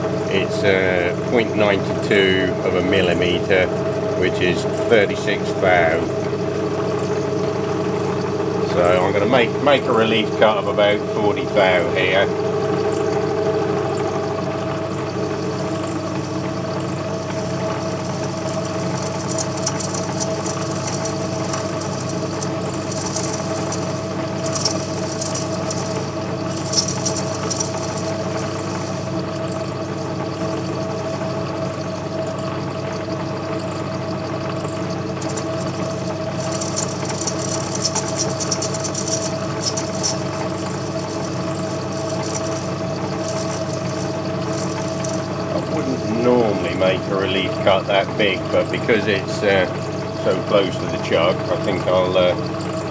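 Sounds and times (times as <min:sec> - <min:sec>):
lathe humming: 0:00.0 - 0:52.9
scratchy cutting noise: 0:35.2 - 0:49.8.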